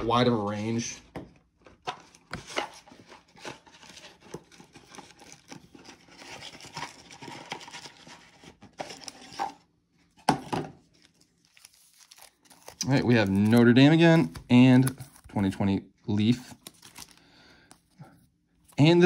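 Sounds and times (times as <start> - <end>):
cards rustling: 1.7 - 9.5, 10.8 - 19.0
wrapper crinkling and tearing: 3.3 - 9.5, 10.9 - 15.2, 16.5 - 17.2.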